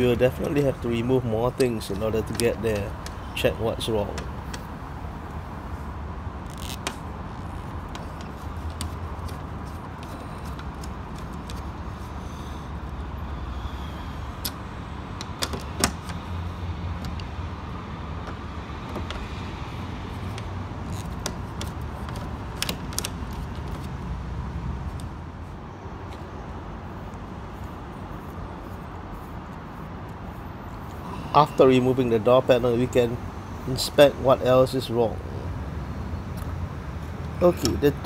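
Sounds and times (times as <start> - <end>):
metal clicks and taps: 17.0 - 17.4, 37.6 - 37.8.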